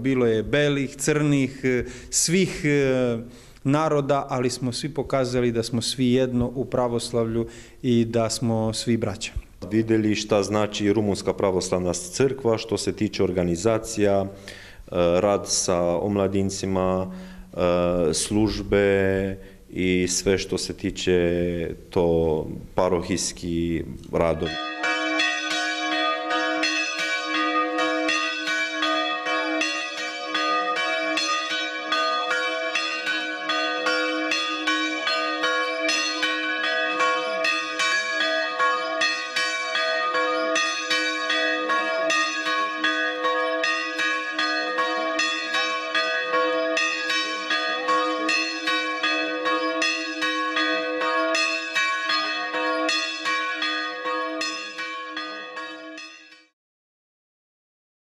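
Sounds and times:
church bells clanging: 4.3 - 18.7, 24.1 - 56.5
hum of lower bells: 24.1 - 56.4.

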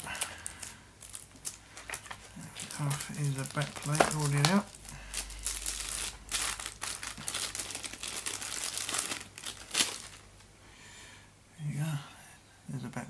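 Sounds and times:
plastic bag crinkling: 0.0 - 10.4.

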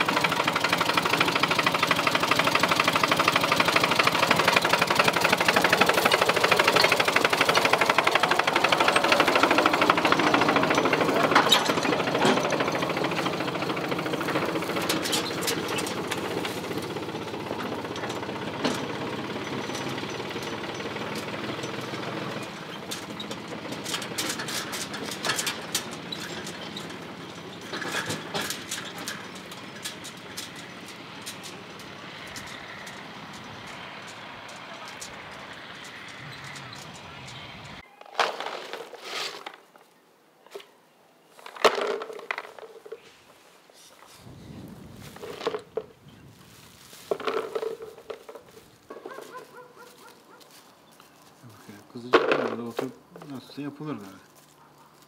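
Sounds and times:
tractor engine running: 0.0 - 37.8, 44.2 - 55.0
trailer clattering and knocking: 0.0 - 37.8, 47.1 - 49.9, 51.7 - 54.2
leaves rustling: 31.5 - 55.0
olives clattering: 46.7 - 49.2.

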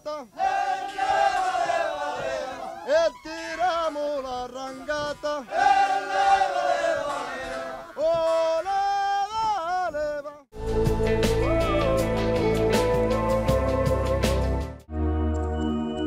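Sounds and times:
man singing: 2.9 - 5.5, 7.9 - 10.5.

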